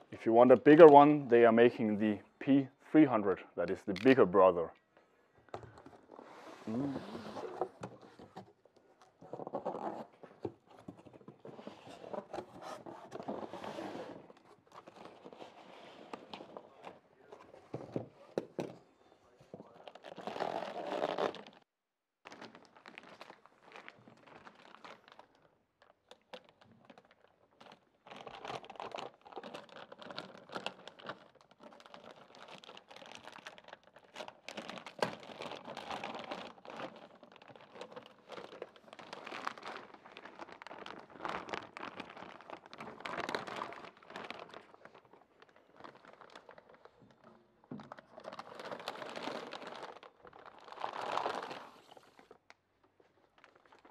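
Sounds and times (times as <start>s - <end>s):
plastic bag crinkling: 22.2s - 53.9s.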